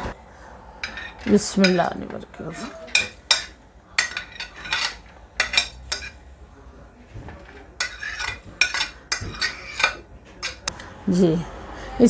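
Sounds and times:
spoon scraping ceramic plate: 0.8s - 1.8s, 2.4s - 6.2s, 7.5s - 10.6s.

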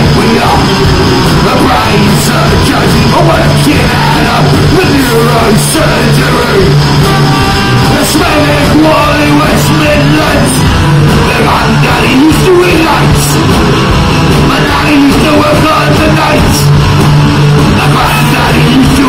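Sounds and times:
person yelling and singing: 0.0s - 13.5s, 14.5s - 16.7s, 17.8s - 19.0s
punk rock band playing: 0.0s - 19.0s.

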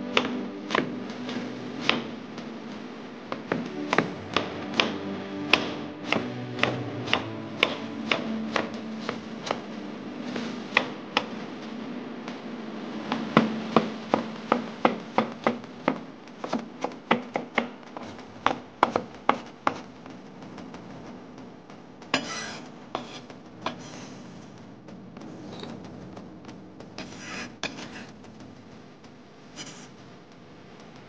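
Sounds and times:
knife chopping on wooden board: 22.2s - 23.2s.

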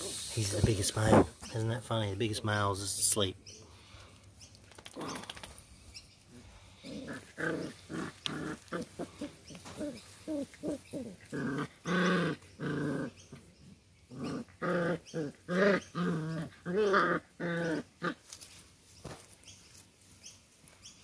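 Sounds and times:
puppies play growling: 4.7s - 18.6s
puppy calls: 6.9s - 13.5s.

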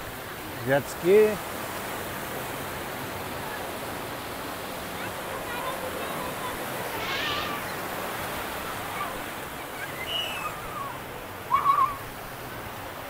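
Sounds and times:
surf: 0.0s - 13.0s
loud wavering call: 9.8s - 12.0s.

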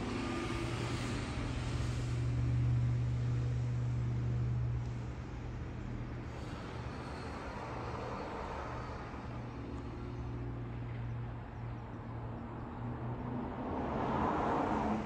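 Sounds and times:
engine hum: 0.0s - 15.0s
outdoor noise: 0.0s - 15.0s.

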